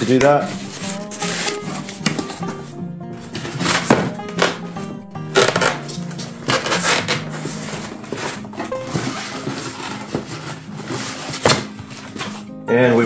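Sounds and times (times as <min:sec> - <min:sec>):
cardboard boxes rustling and scraping: 0:00.0 - 0:04.2, 0:05.4 - 0:12.5.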